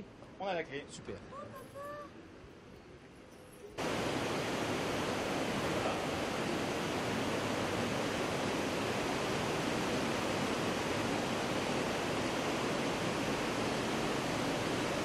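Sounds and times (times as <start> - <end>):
steady rushing noise: 3.8 - 15.0.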